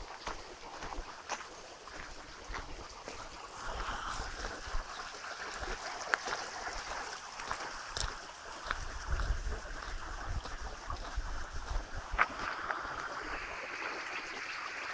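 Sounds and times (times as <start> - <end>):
water flowing in channel: 0.0 - 14.9
wind rumble on microphone: 1.9 - 5.8, 8.0 - 13.7.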